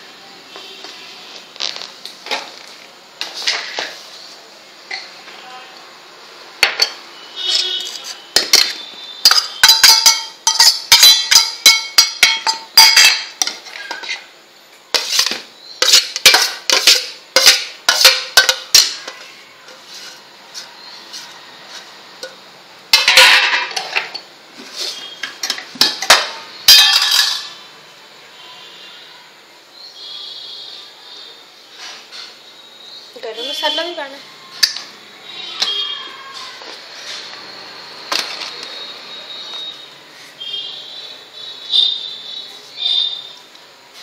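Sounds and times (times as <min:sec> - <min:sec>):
spoon clinking against metal bowl: 0:08.4 - 0:14.1, 0:15.0 - 0:19.8, 0:25.4 - 0:27.6
metal scraping on metal: 0:14.9 - 0:22.4, 0:31.7 - 0:32.4.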